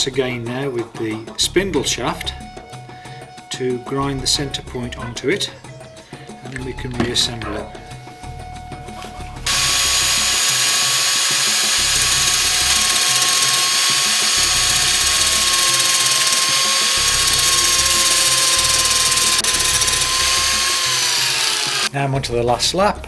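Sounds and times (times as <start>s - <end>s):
angle grinder grinding steel: 9.4s - 21.9s.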